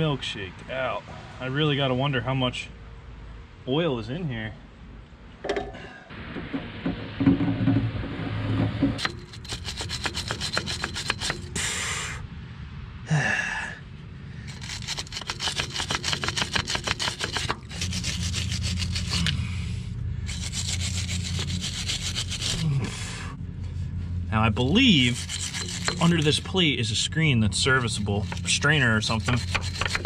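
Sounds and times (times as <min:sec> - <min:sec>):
hand ratchet clicking: 0:09.0 - 0:11.6, 0:14.5 - 0:18.1, 0:29.2 - 0:30.0.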